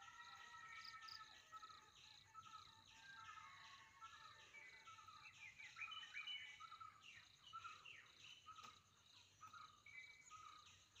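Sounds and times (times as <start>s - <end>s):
small birds chirping: 4.2s - 11.0s.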